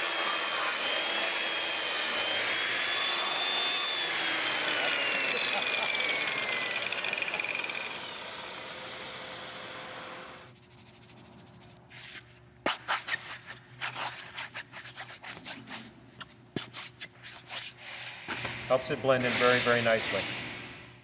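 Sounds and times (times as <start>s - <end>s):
angle grinder whining: 0.0s - 10.5s.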